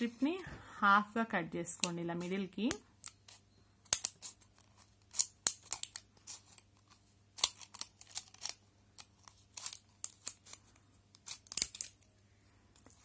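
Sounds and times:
scissors cutting foil and plastic: 0:01.8 - 0:06.6, 0:07.4 - 0:10.6, 0:11.2 - 0:12.0.

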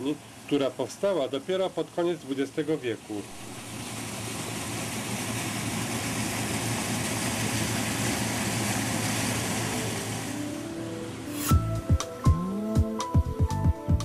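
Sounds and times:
water rushing out of dam outlet: 0:00.0 - 0:10.6
low hum: 0:03.3 - 0:04.2, 0:09.3 - 0:13.5.

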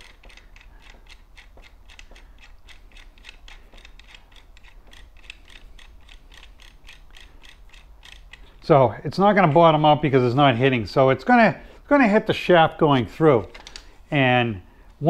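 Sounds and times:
ratcheting wrench clicking: 0:00.0 - 0:08.6.

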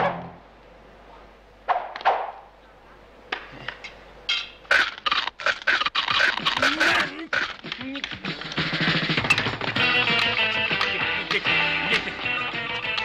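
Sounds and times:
music cue: 0:09.1 - 0:13.0.

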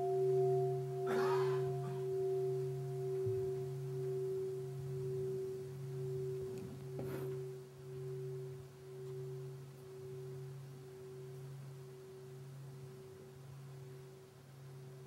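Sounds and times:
meditation bell ringing: 0:00.0 - 0:15.0
soft rustle: 0:02.4 - 0:14.9.

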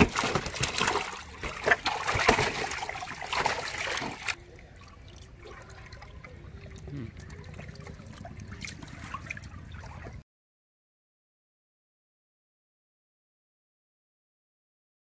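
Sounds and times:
fish thrashing and splashing: 0:00.0 - 0:10.2
water trickling and dripping: 0:00.0 - 0:10.2.

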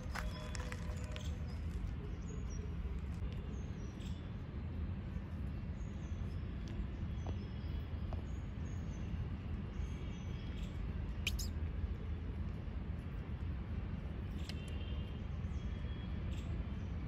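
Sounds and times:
faint high chirps and squeaks: 0:10.4 - 0:11.6.

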